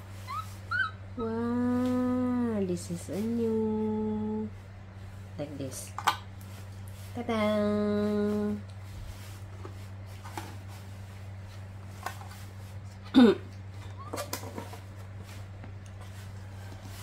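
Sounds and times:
steady low hum: 0:00.0 - 0:17.0
crinkling and rustling: 0:08.0 - 0:17.0.

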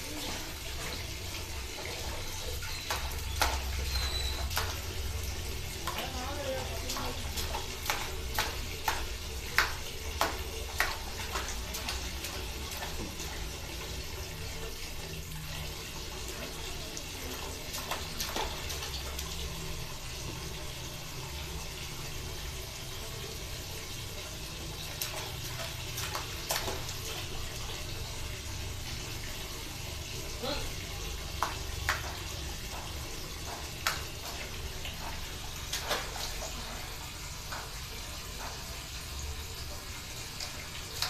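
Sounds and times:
tap water running into bucket: 0:00.0 - 0:41.0.

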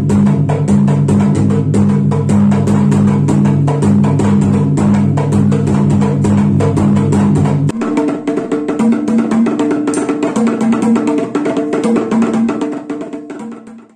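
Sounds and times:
fast drumming: 0:00.0 - 0:13.9
light percussion: 0:00.0 - 0:13.9.

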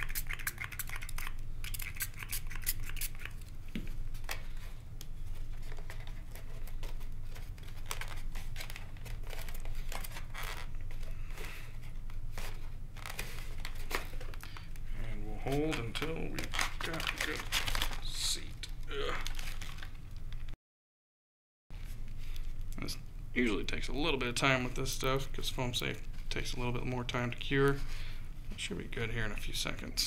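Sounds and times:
steady low hum: 0:00.0 - 0:20.4, 0:21.8 - 0:30.0.

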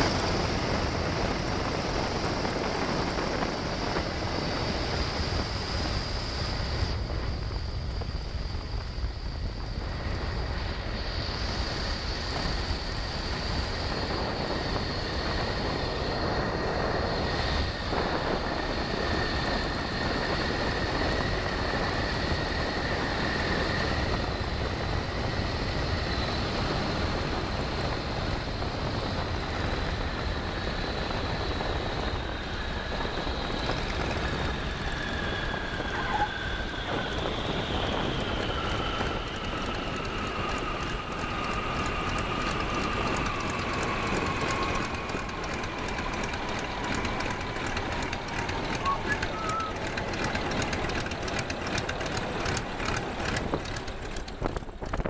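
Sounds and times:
high whine: 0:00.0 - 0:55.0
radial aircraft engine: 0:00.0 - 0:55.0.

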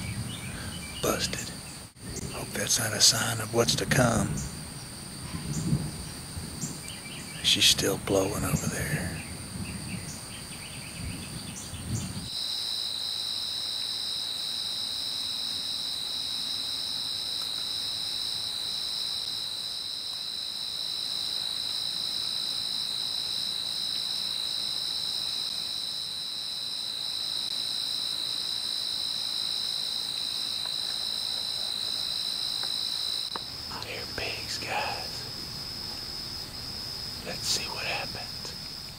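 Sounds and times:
crickets trilling: 0:00.0 - 0:38.9.

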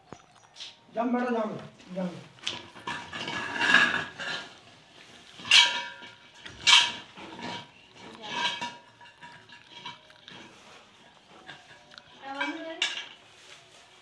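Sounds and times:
steel bowl clanking: 0:02.6 - 0:04.6, 0:05.3 - 0:10.7
bowl scraping: 0:02.6 - 0:14.0.

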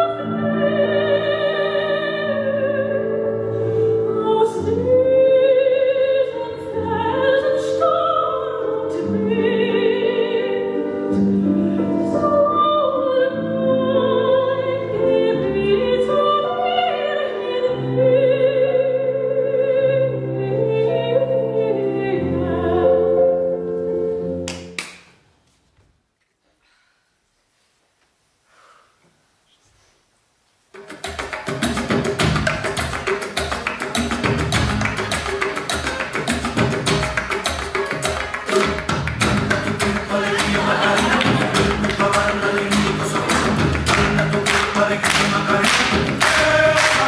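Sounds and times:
operatic singing: 0:31.2 - 0:47.0.

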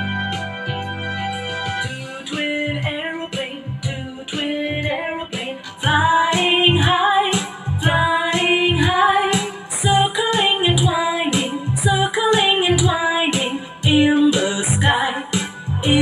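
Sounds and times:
music with a steady beat: 0:00.0 - 0:16.0
woman singing: 0:01.9 - 0:16.0.

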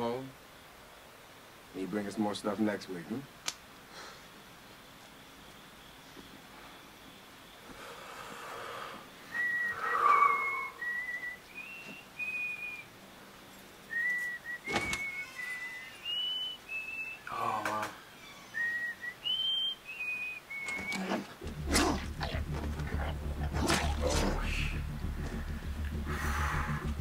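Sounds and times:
person whistling a tune: 0:09.4 - 0:12.8, 0:13.9 - 0:17.2
rush of noise: 0:21.4 - 0:27.0.

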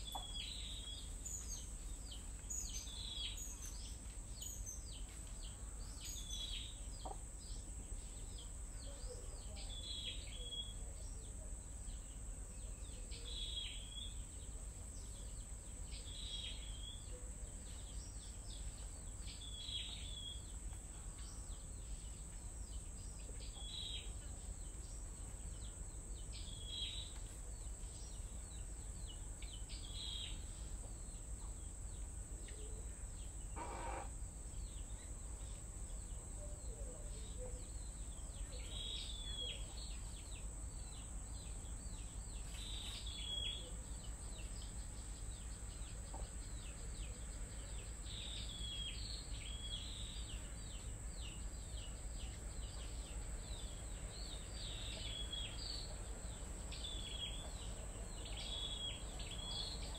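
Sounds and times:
birds chirping: 0:00.0 - 0:59.9
high insect drone: 0:00.0 - 0:59.9
harsh low bird call: 0:33.5 - 0:34.2.

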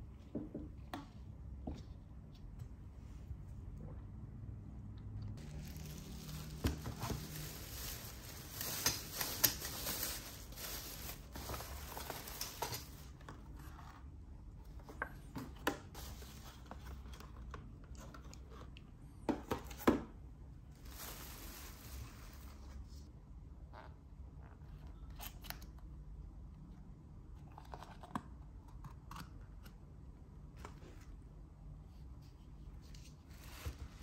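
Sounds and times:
plastic bag rustling and crinkling: 0:05.4 - 0:13.3, 0:20.7 - 0:23.0.

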